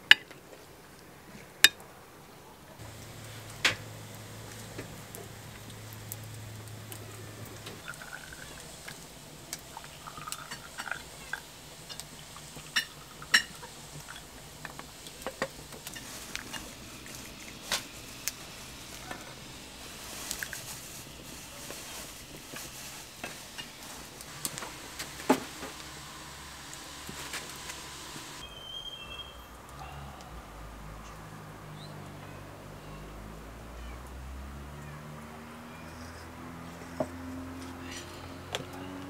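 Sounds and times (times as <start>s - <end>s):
tea pouring into glasses: 2.8s - 24.4s.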